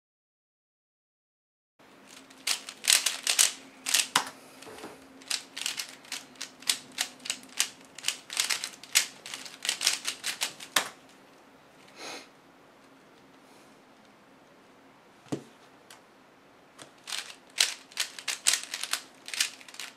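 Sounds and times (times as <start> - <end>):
puzzle cube plastic clicks: 2.2 - 4.4, 5.2 - 11.0, 16.8 - 19.9.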